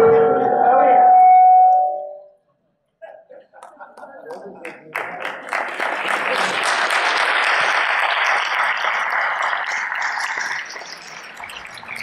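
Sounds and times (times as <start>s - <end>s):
audience applause: 3.6s - 12.0s.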